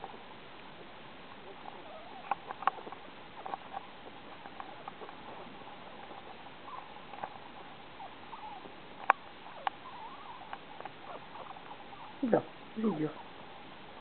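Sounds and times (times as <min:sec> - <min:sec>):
puppy squeaking and whimpering: 0:01.5 - 0:03.8, 0:05.8 - 0:06.9, 0:08.0 - 0:08.7, 0:09.4 - 0:13.4.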